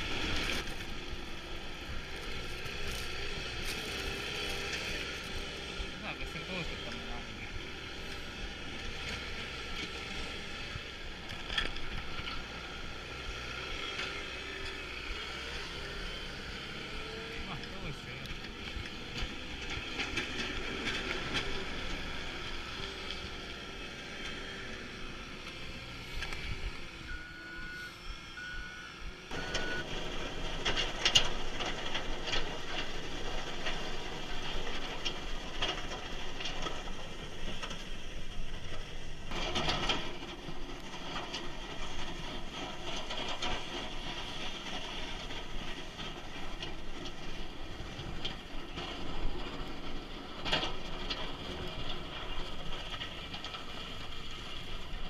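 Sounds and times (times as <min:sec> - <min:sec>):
snowplough vehicle noise: 0:00.0 - 0:55.0
reversing alarm beeps: 0:27.0 - 0:29.9.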